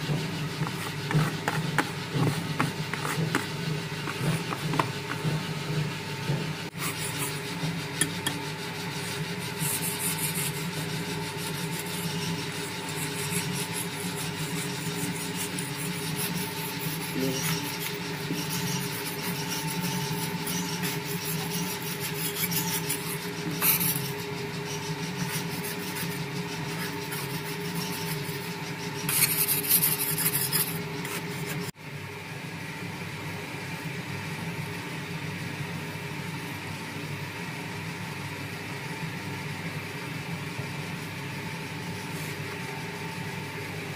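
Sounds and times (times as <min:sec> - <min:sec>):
blades scraping soap dough: 0:00.0 - 0:31.8
mixer motor hum: 0:00.0 - 0:31.8.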